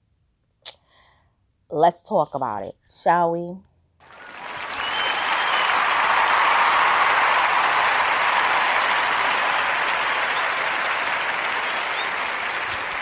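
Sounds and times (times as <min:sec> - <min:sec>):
applause: 0:04.0 - 0:13.0.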